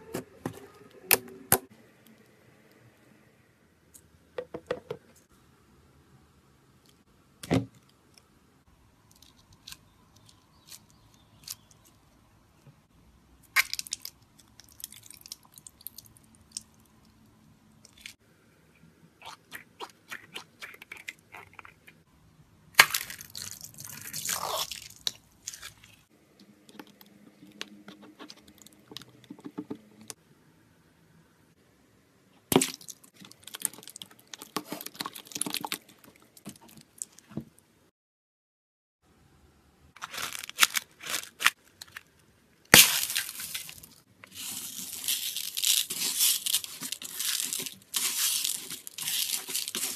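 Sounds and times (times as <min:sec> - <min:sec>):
slime squelching: 0:19.2 - 0:22.0, 0:22.8 - 0:28.9, 0:32.6 - 0:37.3, 0:42.7 - 0:49.9.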